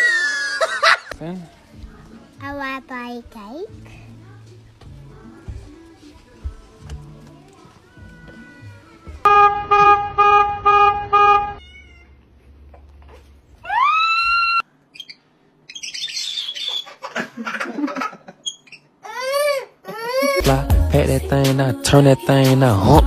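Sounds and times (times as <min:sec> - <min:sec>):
vehicle horn beeping: 0:09.3 - 0:11.6
high-pitched chirps and squeals: 0:13.7 - 0:17.0, 0:18.4 - 0:19.0.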